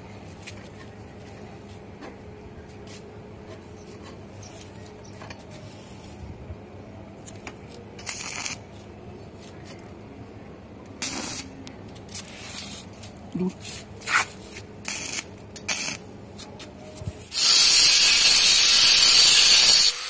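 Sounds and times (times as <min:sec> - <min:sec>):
welding arc crackling and hissing: 0:08.0 - 0:08.6, 0:11.0 - 0:11.5, 0:14.1 - 0:16.1, 0:17.3 - 0:20.0.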